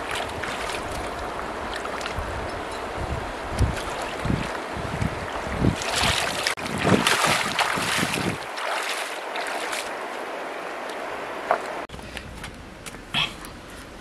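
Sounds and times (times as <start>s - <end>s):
bare feet splashing in water: 0.0s - 2.4s, 3.5s - 10.2s
river water rushing: 0.0s - 11.9s.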